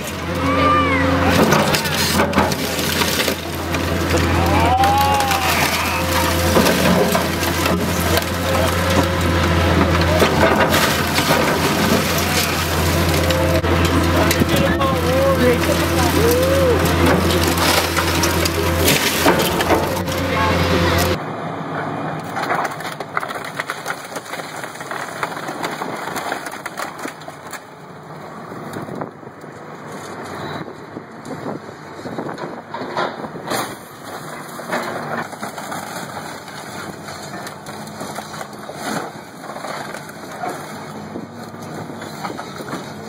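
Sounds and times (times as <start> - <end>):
sheet metal crunching and creaking: 0.0 - 21.2, 31.3 - 43.0.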